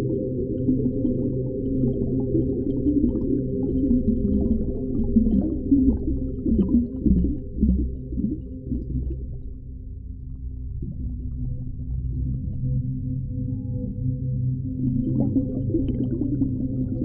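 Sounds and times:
muffled underwater rumble: 0:00.0 - 0:17.0
gurgles and pops: 0:01.9 - 0:09.4.

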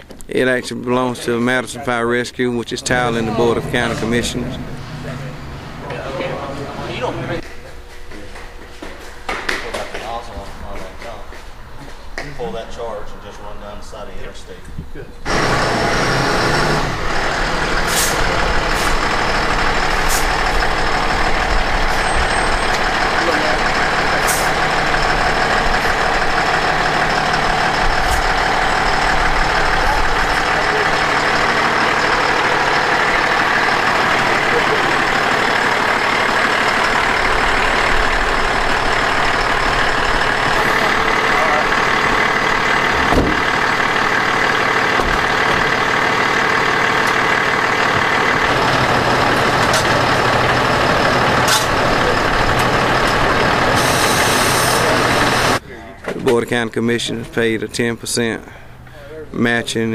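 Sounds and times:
diesel engine running at low revs: 0:01.0 - 0:08.5, 0:15.2 - 0:55.6.

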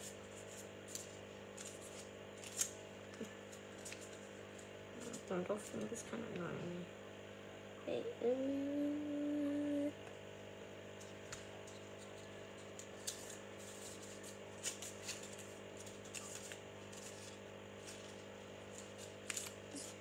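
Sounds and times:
steady low hum: 0:00.0 - 0:20.0
paper rustling and clicking: 0:00.3 - 0:06.0, 0:11.0 - 0:20.0
person humming a note: 0:08.0 - 0:10.0.

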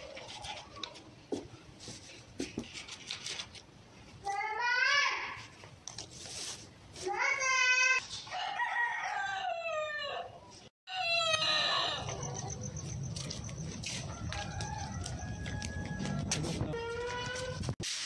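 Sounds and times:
chicken calling: 0:10.9 - 0:12.8.

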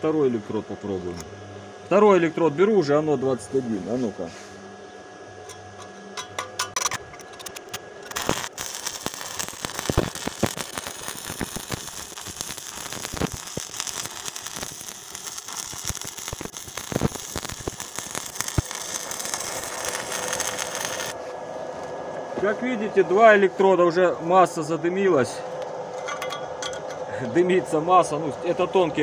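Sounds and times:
welding arc crackling and popping: 0:05.5 - 0:21.2.

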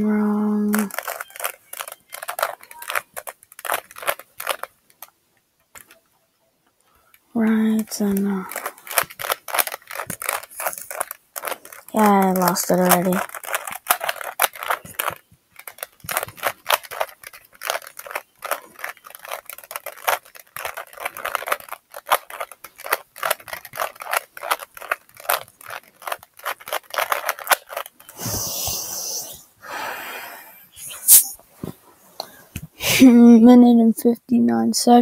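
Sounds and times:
plastic cube clicking: 0:00.6 - 0:06.1, 0:07.1 - 0:29.0.

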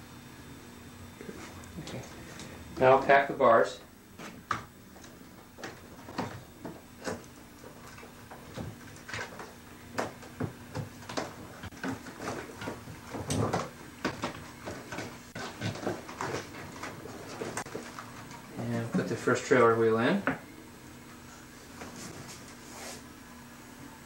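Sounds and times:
bike parts knocking and rustling: 0:04.2 - 0:19.2.

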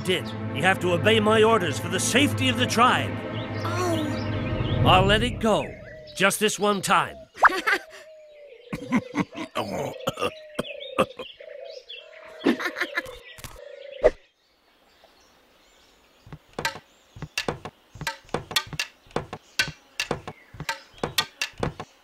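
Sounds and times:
birds chirping: 0:00.0 - 0:22.0
sharp knocks of bamboo poles: 0:16.3 - 0:22.0.

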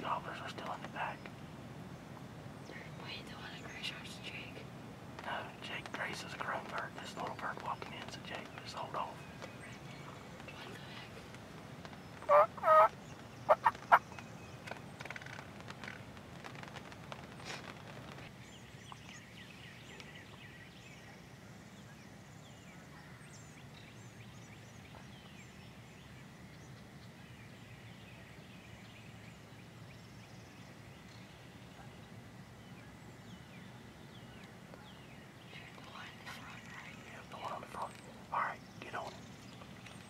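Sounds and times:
low outdoor hum: 0:00.0 - 0:40.0
turkeys gobbling: 0:12.3 - 0:12.9, 0:13.5 - 0:14.0.

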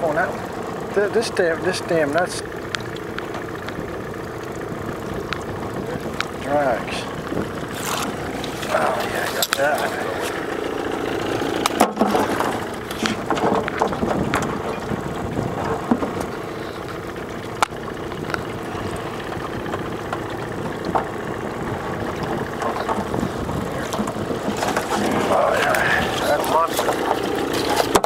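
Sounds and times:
boat motor idling: 0:00.0 - 0:28.0
sharp knocks and clicks: 0:11.6 - 0:15.0, 0:19.4 - 0:21.2.

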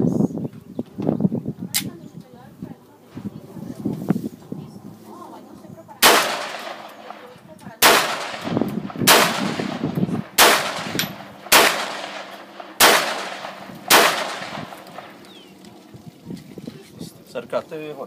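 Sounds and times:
pistol shots: 0:06.0 - 0:15.3.

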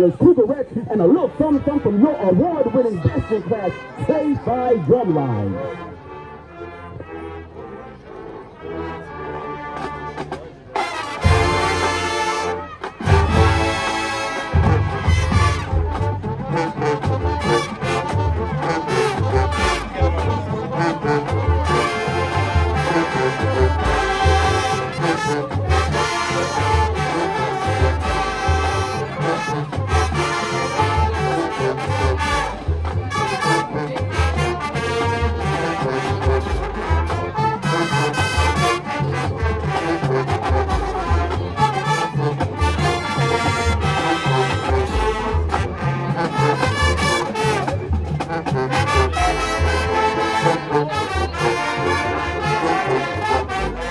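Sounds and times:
marching band playing: 0:00.0 - 0:53.9
bass drum beat: 0:12.9 - 0:53.9.

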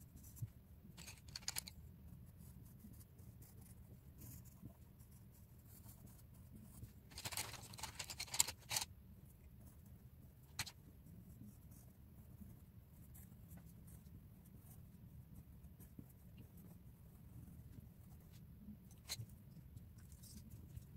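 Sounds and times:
pencils clattering and rustling: 0:01.0 - 0:01.7, 0:07.1 - 0:08.9, 0:10.5 - 0:10.8
pencil scratching on paper: 0:02.3 - 0:08.8.

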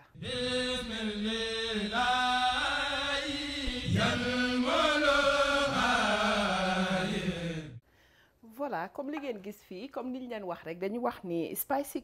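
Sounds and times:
voice singing chant-like notes: 0:00.0 - 0:07.8
intro music: 0:00.2 - 0:07.6.

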